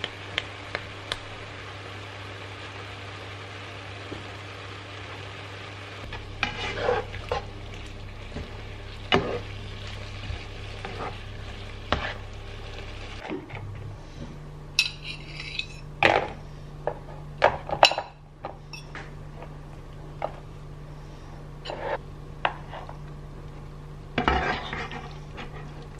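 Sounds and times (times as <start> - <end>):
mushrooms sizzling in a frying pan: 0.0 - 13.3
spoon knocking and scraping pan: 6.1 - 7.5, 8.3 - 9.5, 10.2 - 11.2, 11.9 - 12.3, 24.2 - 25.8
fork scraping on a plate: 6.4 - 7.4, 24.2 - 25.7.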